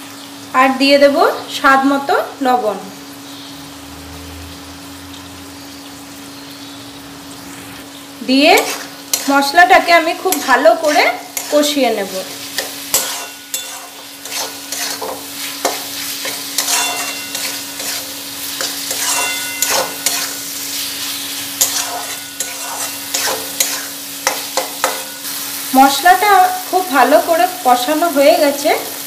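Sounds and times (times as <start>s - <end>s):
food sizzling: 0.0s - 29.0s
metal spatula scraping a pan: 8.4s - 25.5s.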